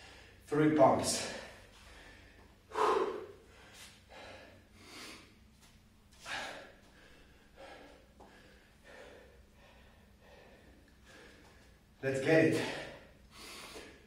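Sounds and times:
man breathing hard: 0.0s - 0.5s, 1.1s - 5.4s, 6.2s - 11.8s, 12.5s - 14.0s.

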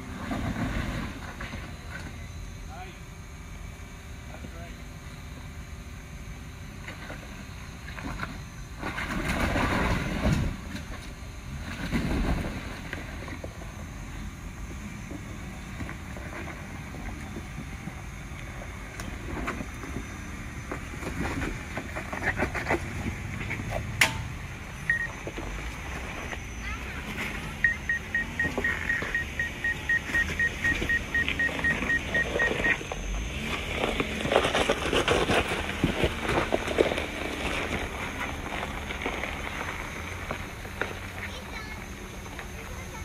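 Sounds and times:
engine running at crawling speed: 0.0s - 43.0s
tyres crunching over rock: 30.0s - 41.3s.

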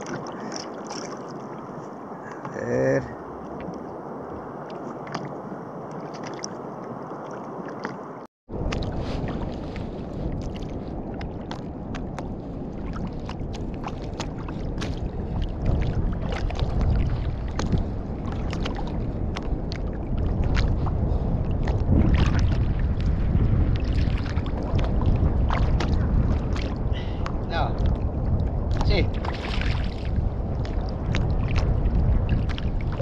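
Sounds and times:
small splashes: 0.0s - 1.6s
water lapping against kayak hull: 0.0s - 2.6s, 3.2s - 33.0s
wind rumble on microphone: 0.0s - 33.0s.

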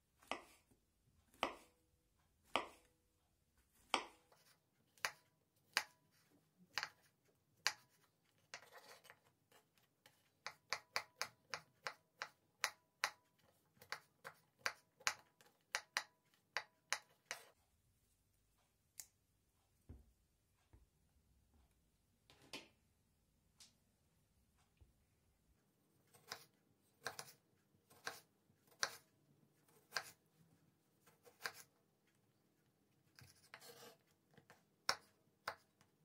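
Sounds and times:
knife chopping on wooden board: 0.2s - 0.6s, 1.3s - 1.7s, 2.5s - 2.9s, 3.9s - 6.0s, 26.1s - 29.1s, 29.7s - 30.2s, 31.0s - 31.7s
knife rasp: 27.9s - 29.0s, 29.7s - 30.2s, 31.0s - 31.7s, 33.2s - 34.0s.

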